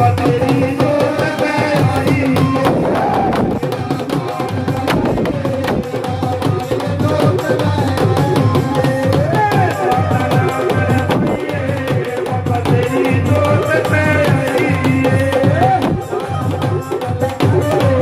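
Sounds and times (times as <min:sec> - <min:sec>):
dholak drum beating: 0:00.0 - 0:18.0.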